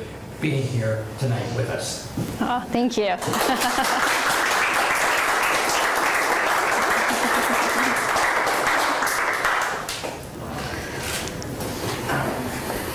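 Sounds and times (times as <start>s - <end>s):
audience applauding: 3.2s - 10.2s.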